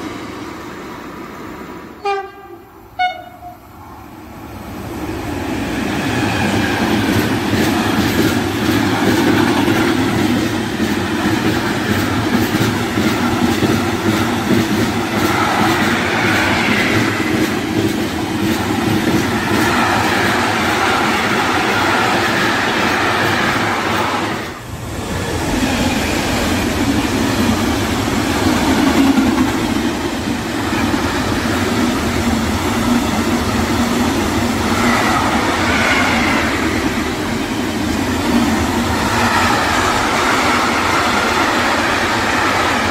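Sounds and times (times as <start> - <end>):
train wheels rumbling on rail: 0.0 - 42.9.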